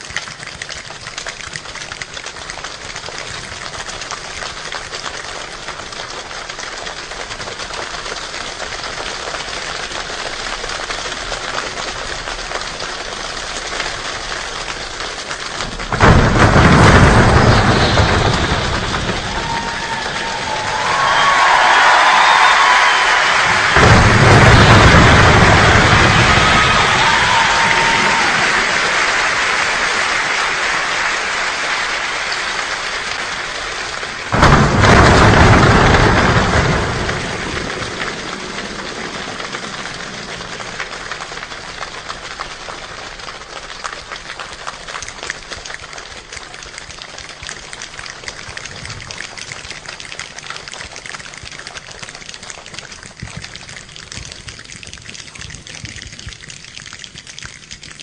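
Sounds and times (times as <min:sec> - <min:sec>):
choir making rain sounds with hands: 0:00.0 - 0:58.0
deep rumble: 0:15.5 - 0:28.8.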